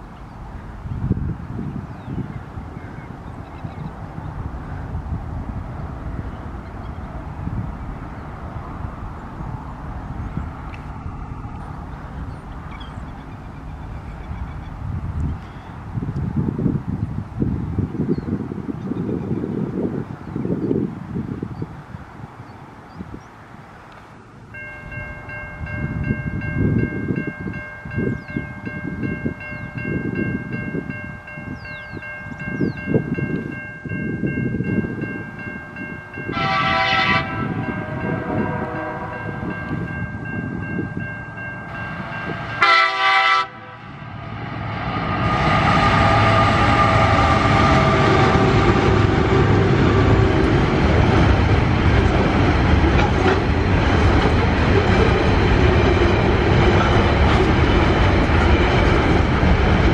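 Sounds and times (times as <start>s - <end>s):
locomotive engines throbbing: 24.6s - 59.9s
train horn blasts: 36.1s - 39.9s, 41.7s - 50.0s
wagon wheels rushing on rail: 41.6s - 59.9s.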